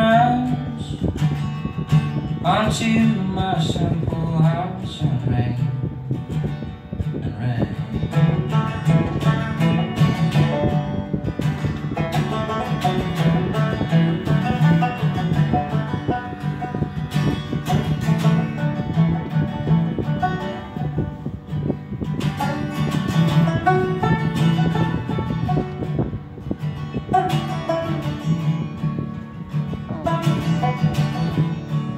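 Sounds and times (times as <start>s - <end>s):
acoustic guitar playing: 0.0s - 31.9s
banjo plucking: 7.8s - 31.9s.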